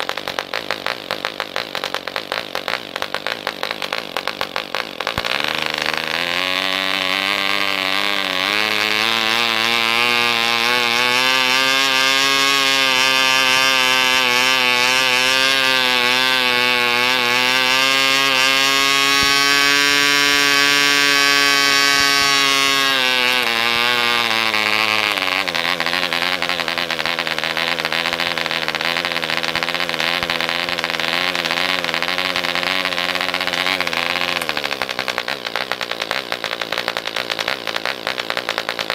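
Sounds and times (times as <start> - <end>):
model engine buzzing: 0.0 - 38.9.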